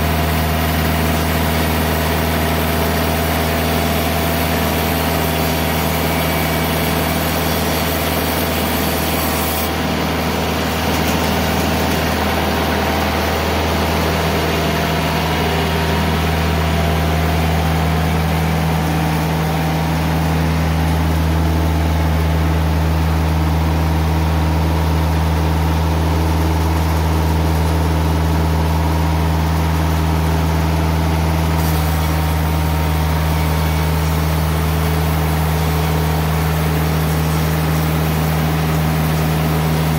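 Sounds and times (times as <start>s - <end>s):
sawmill engine drone: 0.0s - 39.9s
band blade cutting log: 4.0s - 12.4s, 31.5s - 39.1s.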